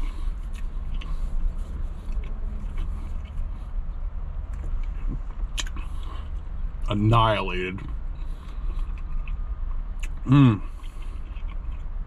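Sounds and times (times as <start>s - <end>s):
person chewing: 0.0s - 3.8s, 4.5s - 6.5s, 8.2s - 12.0s
steady low rumble: 0.0s - 12.0s.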